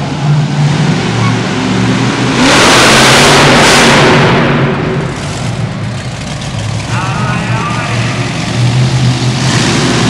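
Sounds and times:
monster truck engine roaring: 0.0 - 10.0.

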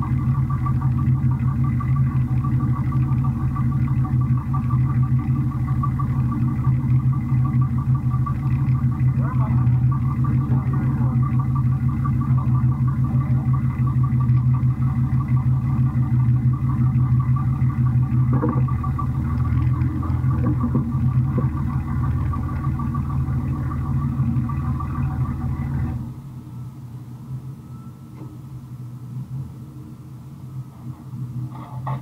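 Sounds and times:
race car engine idling: 0.0 - 32.0.

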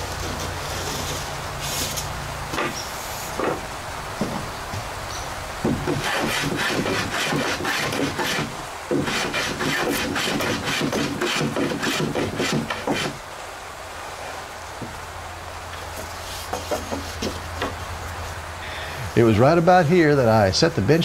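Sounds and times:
hand plane shaving wood: 5.8 - 13.2.

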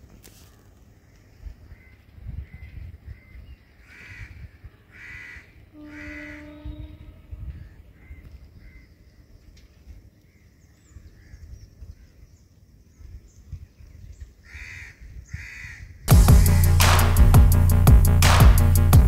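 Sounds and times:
crows cawing: 0.4 - 6.5, 7.5 - 9.0, 14.4 - 15.9
loud music: 16.1 - 19.0
low steady rumble: 16.1 - 19.0.

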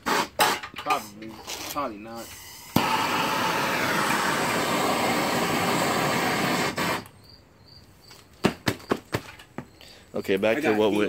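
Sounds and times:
torch flame hissing: 2.2 - 7.1.

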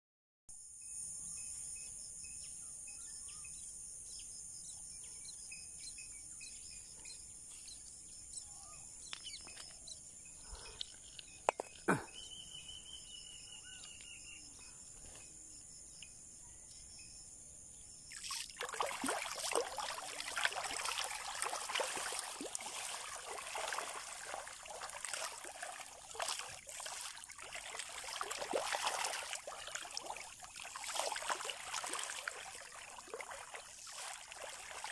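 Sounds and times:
faint bird chirps: 0.8 - 18.1
water lapping at shoreline: 18.1 - 34.9.

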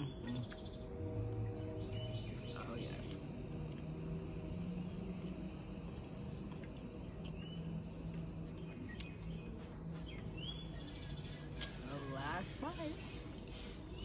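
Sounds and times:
low hum: 0.0 - 14.0
chewing spaghetti: 3.0 - 14.0.

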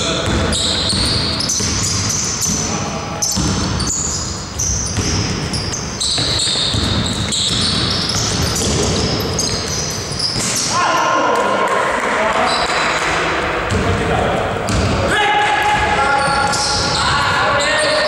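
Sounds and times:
sneakers squeaking on gym floor: 0.0 - 10.8, 12.4 - 13.9, 15.7 - 18.0
basketball bouncing: 0.1 - 10.7, 12.5 - 14.0, 14.6 - 18.0
players calling out: 5.6 - 18.0.

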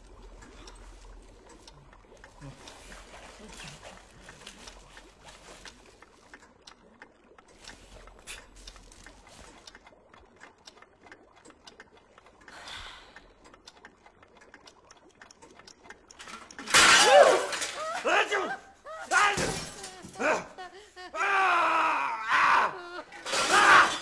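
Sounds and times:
faint ticks: 0.0 - 16.7.

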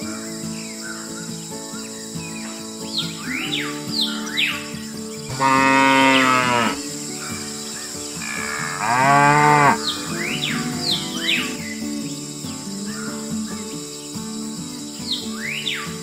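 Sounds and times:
birds chirping: 0.0 - 16.0
light background music: 0.0 - 16.0
cow mooing: 5.3 - 6.8, 8.2 - 11.0.

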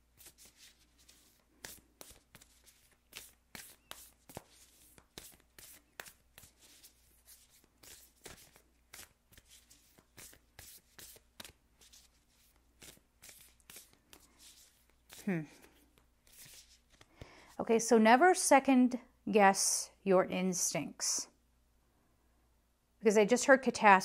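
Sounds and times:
cards being shuffled: 0.1 - 17.4.

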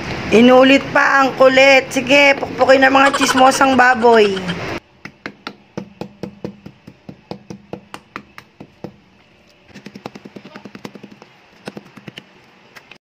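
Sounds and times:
knife pounding meat on wooden board: 5.0 - 9.0, 9.8 - 12.2.

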